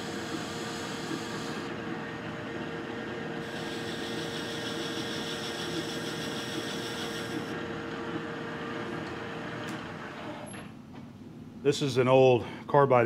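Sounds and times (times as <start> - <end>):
metal lathe motor and gear hum: 0.0 - 10.6
boring bar cutting hiss: 3.4 - 7.5.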